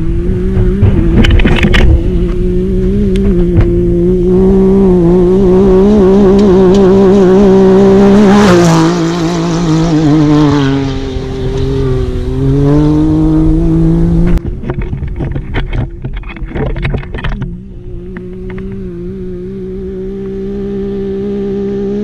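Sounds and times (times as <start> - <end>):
engine running hard driving past: 0.0 - 22.0
knocks and clatter: 0.6 - 2.3, 14.3 - 17.6.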